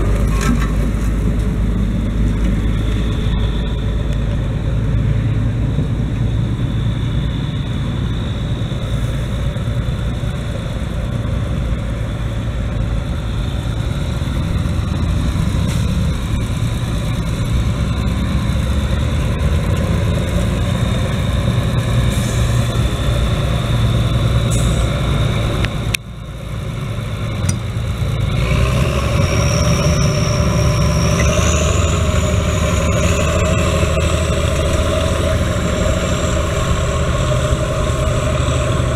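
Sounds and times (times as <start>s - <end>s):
tractor diesel engine under load: 0.0s - 38.9s
high whistle: 29.0s - 38.9s.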